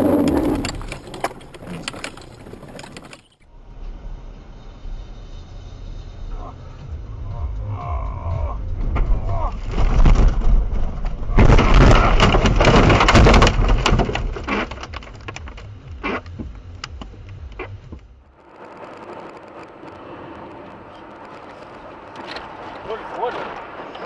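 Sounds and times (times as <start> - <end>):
road and tyre noise: 0.0 - 24.0
scraping against car body: 8.9 - 18.1
car crashing into brush: 9.0 - 15.2.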